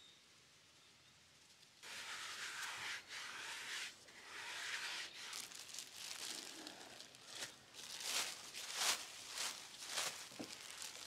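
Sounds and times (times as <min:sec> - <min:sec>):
plastic bag crinkling and rustling: 0:05.3 - 0:11.0.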